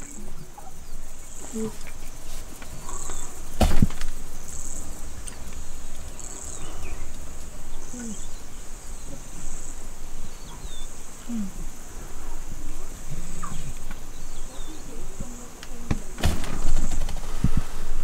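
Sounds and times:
insect buzzing pulses: 0.0s - 18.0s
sharp knock: 3.6s - 4.1s.

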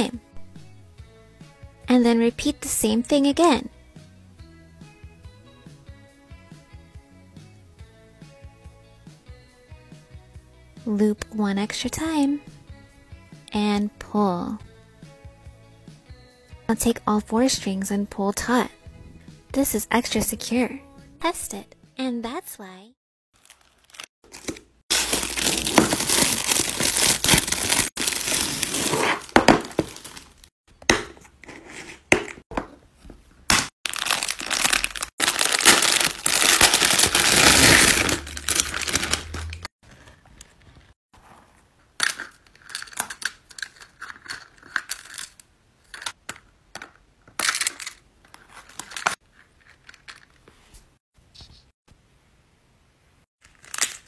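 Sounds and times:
plastic packaging crinkling and tearing: 23.4s - 30.5s, 33.9s - 39.7s.

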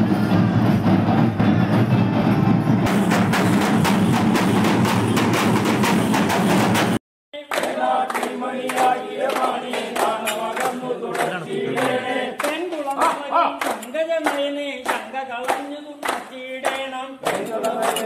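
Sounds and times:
fast drumming by street band: 0.0s - 7.0s
group of voices singing: 7.4s - 18.0s.

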